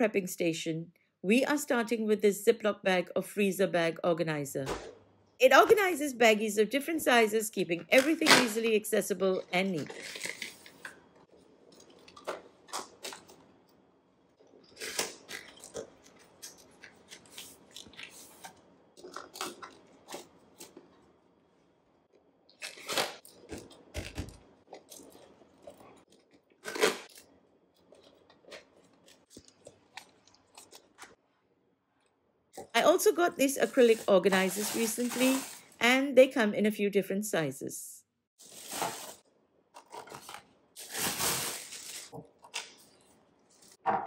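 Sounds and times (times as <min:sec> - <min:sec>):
plastic bags crinkling: 0:33.2 - 0:35.8, 0:38.4 - 0:39.2, 0:39.8 - 0:43.6.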